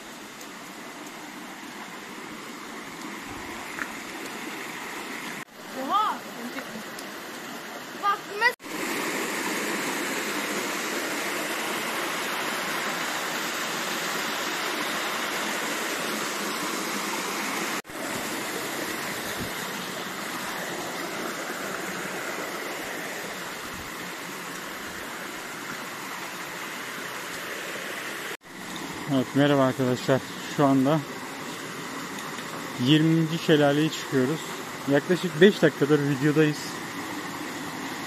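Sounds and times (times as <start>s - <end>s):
water rushing down waterfall: 0.0s - 38.0s.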